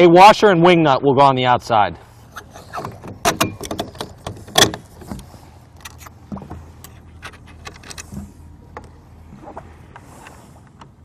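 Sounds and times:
sharp metal knocks: 2.4s - 5.2s.

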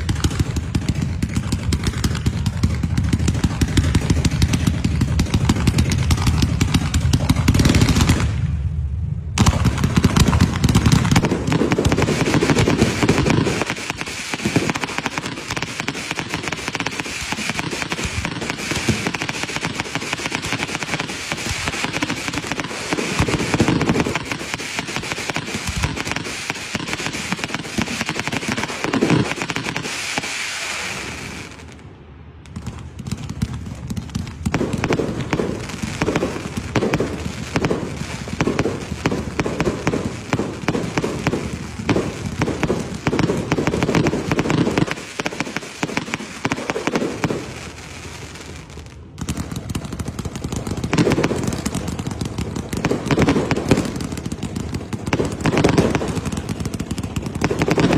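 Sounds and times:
fireworks bangs and crackles: 0.0s - 57.9s
fireworks hiss: 9.4s - 31.8s, 33.9s - 48.8s.

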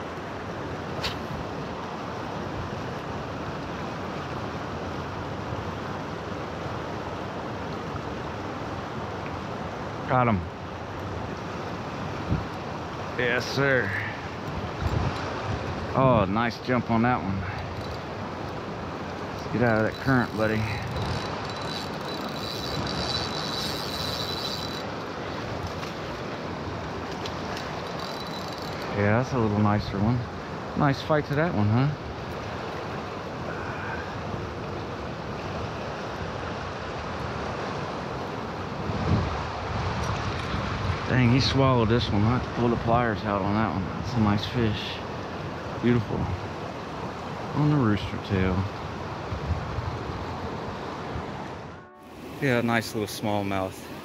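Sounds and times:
river water rushing over rocks: 44.6s - 54.0s
river rushing over rocks: 50.0s - 54.0s
faint high steady tone: 51.7s - 53.9s.

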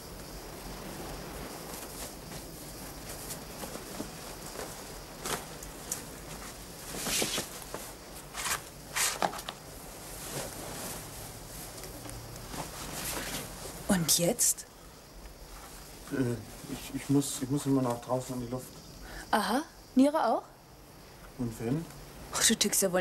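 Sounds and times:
clothing rustling and swishing: 0.0s - 14.5s, 15.2s - 18.7s
steady hiss: 0.0s - 23.0s
soft footsteps: 0.8s - 13.9s, 15.2s - 18.4s.

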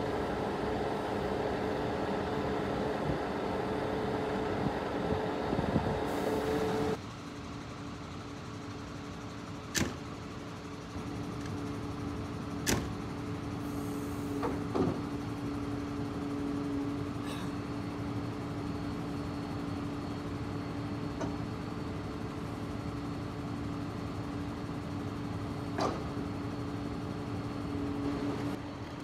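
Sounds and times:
diesel engine and hydraulic pump hum: 0.0s - 29.0s.

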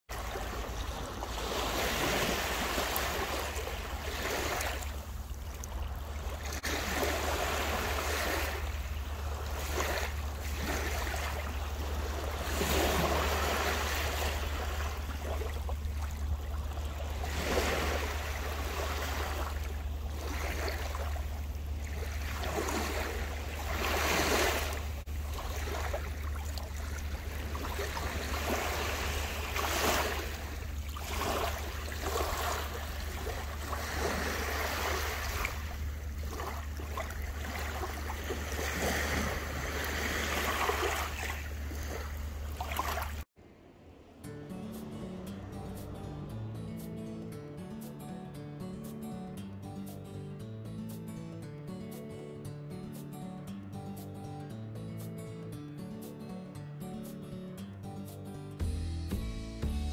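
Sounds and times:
waves lapping on a beach: 0.1s - 46.9s.

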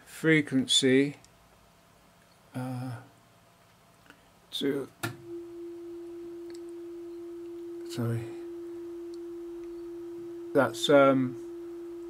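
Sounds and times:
sine-wave test tone from speaker: 5.2s - 12.0s.

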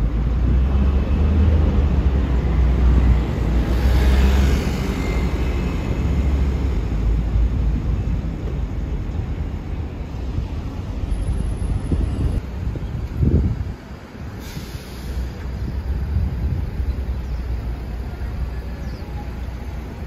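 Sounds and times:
traffic noise: 0.0s - 20.0s
passing vehicle hiss: 1.2s - 7.0s, 13.2s - 16.8s
wind buffeting microphone: 5.7s - 14.4s, 15.2s - 17.6s.

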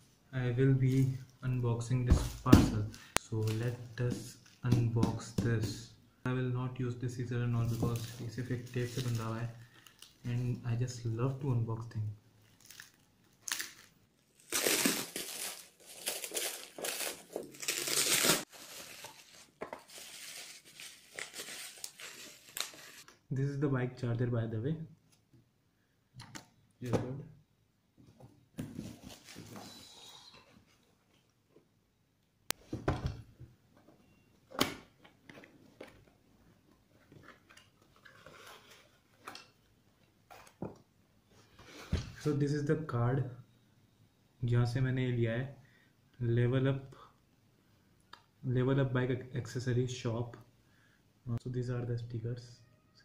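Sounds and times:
bubble wrap crinkling: 7.6s - 10.3s, 12.4s - 23.1s
plastic bag tearing and crinkling: 12.6s - 23.0s
cardboard and paper rustling: 14.6s - 23.0s.

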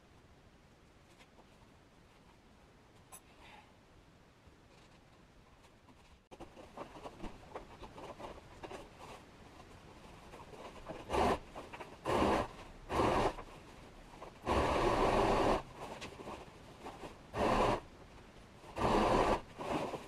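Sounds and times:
fabric rustling: 4.7s - 14.6s, 15.4s - 20.0s
sewing machine stitching: 11.0s - 11.4s, 12.0s - 13.4s, 14.4s - 15.6s, 17.4s - 17.8s, 18.8s - 20.0s.

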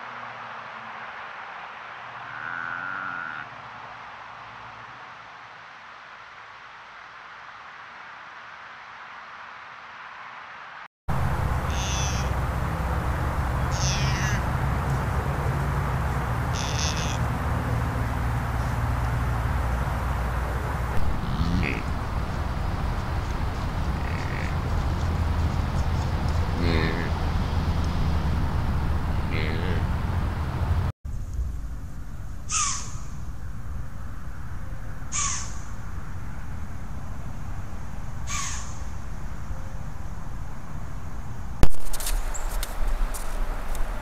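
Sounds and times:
deer bleating: 2.3s - 3.5s, 11.6s - 12.4s, 13.6s - 14.5s, 16.5s - 17.3s, 21.0s - 22.1s, 23.9s - 24.9s, 26.5s - 27.2s, 29.2s - 30.0s
steady low hum: 11.1s - 44.0s.

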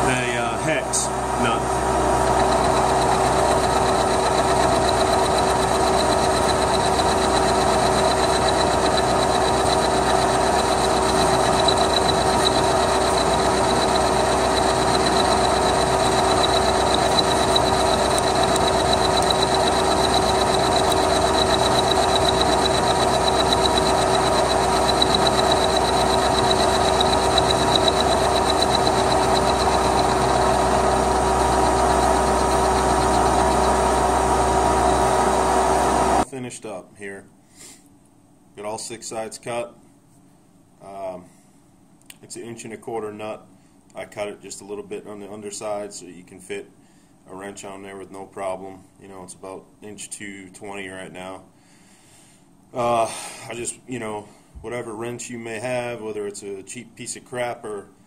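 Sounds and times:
high cutting whine: 0.0s - 36.3s
milling machine motor drone: 0.0s - 36.3s.

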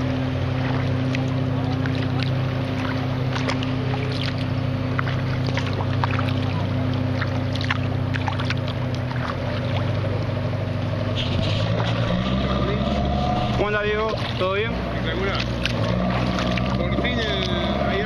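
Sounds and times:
kayak paddles splashing: 0.0s - 18.0s
motorboat engine humming: 0.0s - 18.0s.

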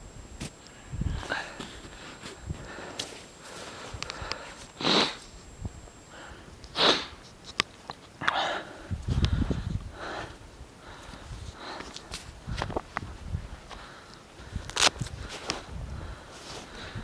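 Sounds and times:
footsteps crunching in snow: 0.4s - 5.5s
person breathing hard: 0.7s - 5.3s, 8.2s - 12.8s, 13.7s - 17.0s.

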